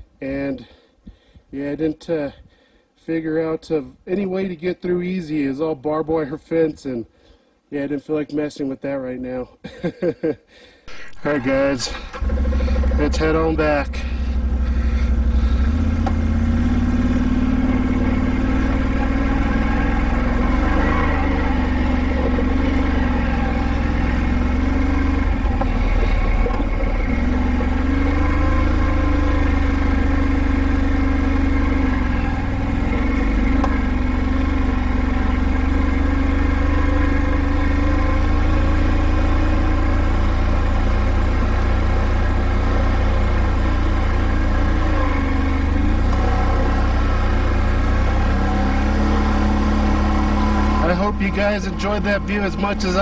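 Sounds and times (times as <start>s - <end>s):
quad bike engine running: 10.9s - 53.0s.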